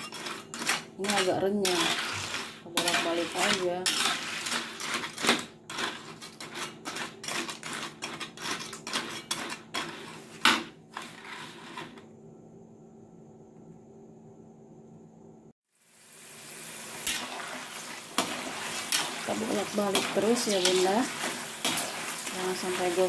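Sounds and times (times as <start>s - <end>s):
metal spoon scraping a wok: 0.0s - 12.0s, 18.1s - 23.0s.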